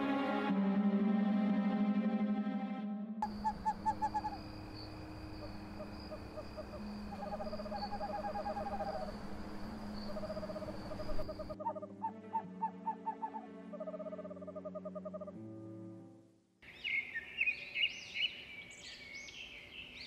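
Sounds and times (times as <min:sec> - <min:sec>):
steady high whine: 0:03.2 - 0:11.6
owl calling short notes: 0:03.2 - 0:13.4.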